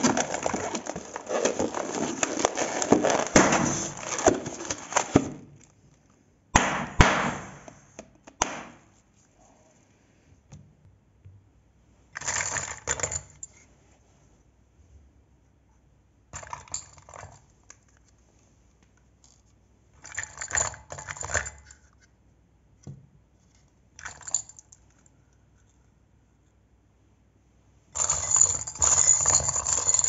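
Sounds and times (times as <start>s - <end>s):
small hard pieces clattering: 0.0s - 5.2s.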